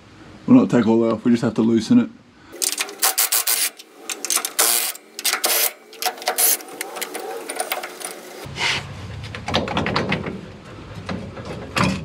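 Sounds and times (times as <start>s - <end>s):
wrench squeaking on rusted nuts: 2.6s - 8.5s.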